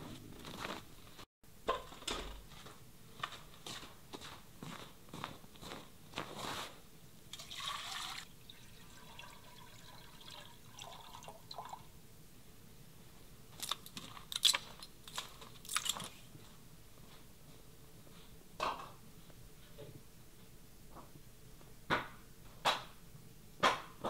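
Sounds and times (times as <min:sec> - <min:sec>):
liquid splash: 0:07.4 - 0:11.8.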